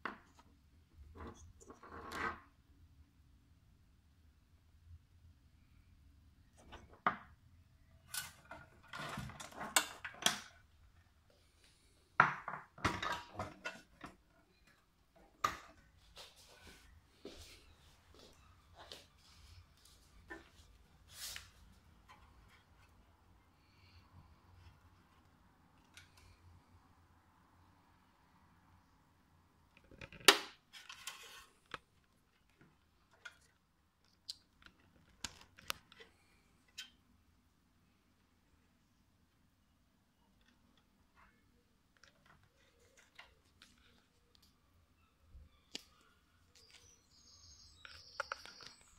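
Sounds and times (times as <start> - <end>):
wires rustling: 12.8 - 26.6, 40.3 - 44.6.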